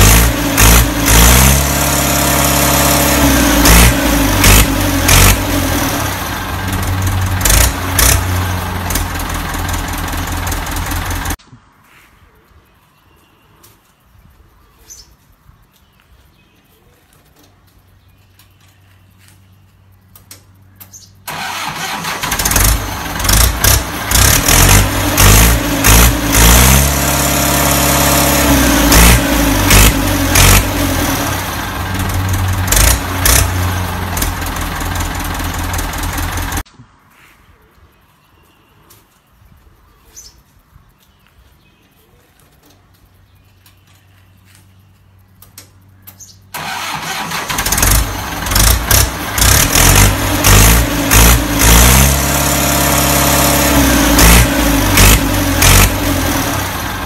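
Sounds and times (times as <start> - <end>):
tractor diesel engine revving: 0.0 - 11.4, 21.3 - 36.6, 46.5 - 57.0.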